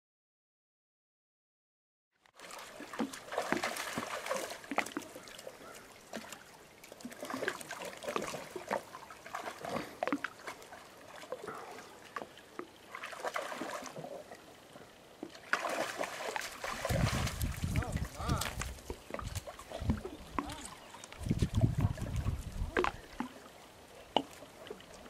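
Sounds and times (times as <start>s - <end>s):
dogs splashing in water: 2.4s - 14.2s, 15.4s - 23.4s.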